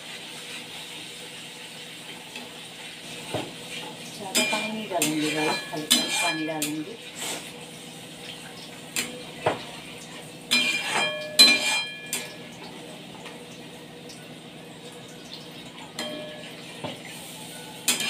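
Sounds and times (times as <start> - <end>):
metal ladle scraping a pan: 4.3 - 7.4, 10.5 - 12.2.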